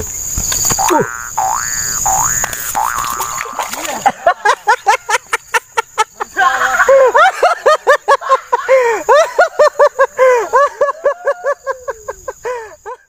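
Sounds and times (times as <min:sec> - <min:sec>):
high-pitched laughter: 0:03.0 - 0:13.0.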